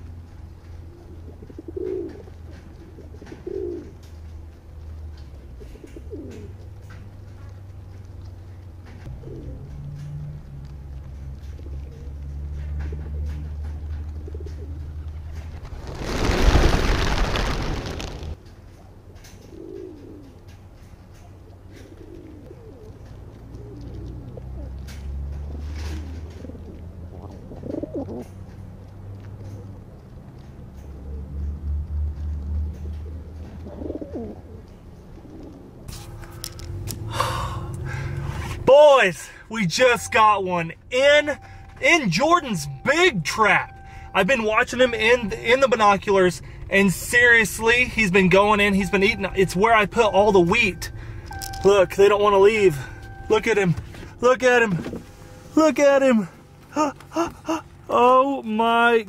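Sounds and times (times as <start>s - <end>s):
pigeons cooing: 0.7s - 7.6s, 8.2s - 10.5s, 11.3s - 15.2s, 18.8s - 28.6s, 29.3s - 31.6s, 32.2s - 35.9s
low steady rumble: 34.4s - 58.8s
steady low hum: 34.5s - 58.6s.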